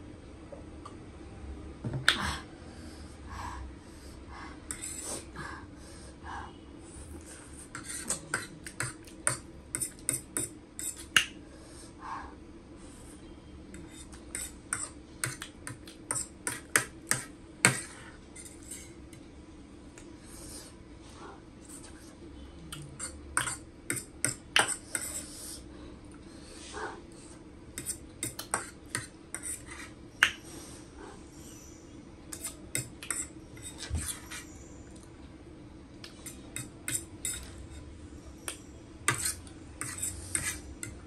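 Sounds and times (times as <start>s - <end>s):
faint steady hum: 0.0s - 41.0s
fork scraping a ceramic plate: 4.7s - 5.1s, 7.7s - 11.2s, 13.7s - 19.0s, 23.0s - 25.4s, 27.8s - 30.0s, 32.3s - 34.6s, 36.1s - 37.9s, 39.1s - 41.0s.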